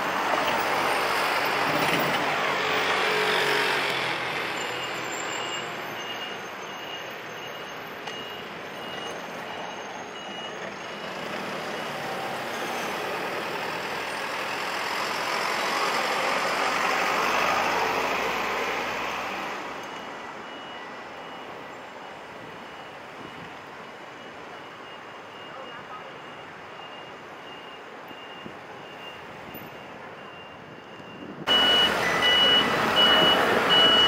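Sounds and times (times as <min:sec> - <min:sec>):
car and truck driving past: 0:00.0 - 0:07.6, 0:26.9 - 0:34.0
short high beep: 0:29.8 - 0:34.0.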